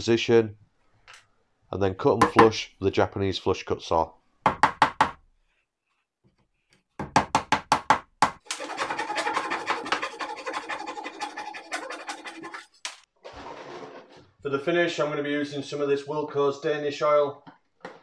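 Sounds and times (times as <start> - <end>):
hammer tapping wooden plugs: 2.2 - 2.6, 7.0 - 8.6
hand saw rasping: 8.5 - 12.8.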